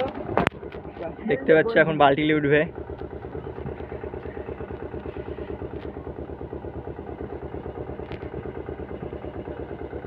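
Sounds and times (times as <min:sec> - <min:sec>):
small engine idling: 0:00.0 - 0:10.0.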